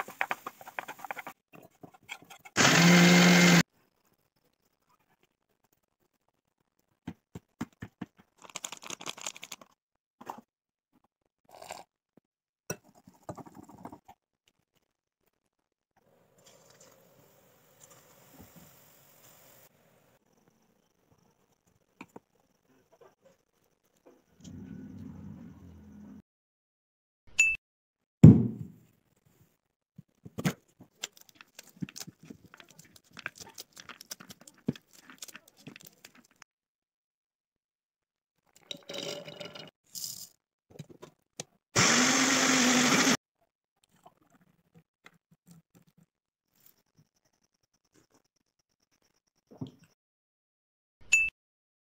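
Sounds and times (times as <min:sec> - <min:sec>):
loud deep thump: 0:28.2 - 0:28.7
pomegranate rind crackling: 0:31.0 - 0:36.4.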